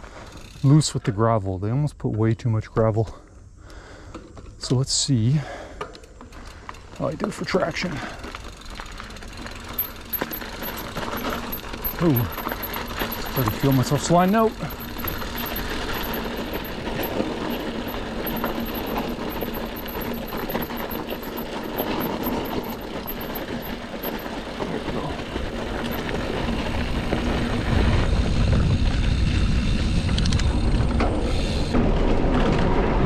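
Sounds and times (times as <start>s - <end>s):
bike rolling on gravel: 6.2s - 33.0s
wind buffeting microphone: 25.2s - 31.1s.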